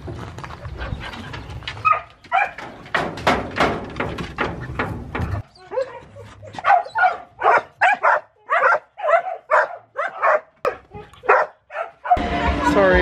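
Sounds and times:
dogs barking: 1.8 - 2.7, 5.7 - 12.3.

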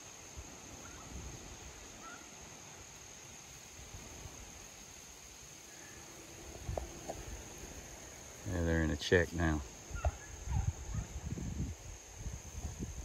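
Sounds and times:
insects singing drone: 0.0 - 13.0
faint chirps: 5.4 - 11.0
low wind rumble: 6.0 - 13.0.

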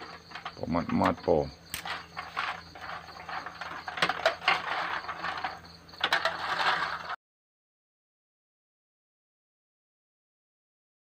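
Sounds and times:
wood fire crackling: 0.0 - 5.6
cockles boiling in a wok: 0.0 - 7.2.

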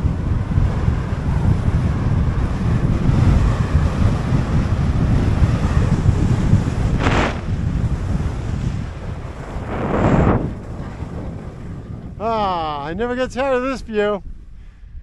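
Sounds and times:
wind buffeting microphone: 0.0 - 15.0
ski edges scraping: 7.0 - 7.5.

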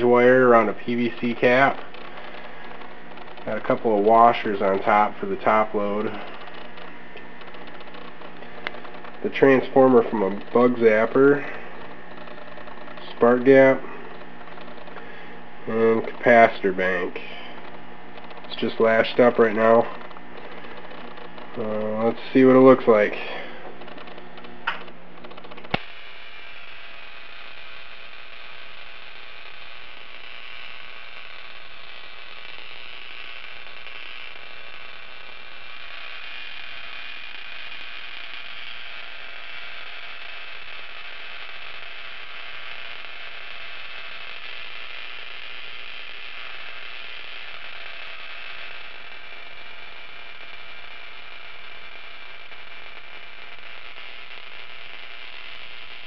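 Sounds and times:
tesla coil buzzing: 0.0 - 56.0
sharp click: 6.0 - 13.2, 14.0 - 15.1, 17.5 - 18.7, 23.6 - 25.9.

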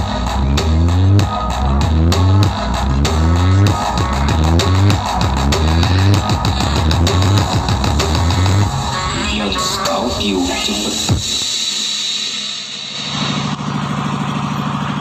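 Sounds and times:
loud bass-heavy music: 0.0 - 15.0.

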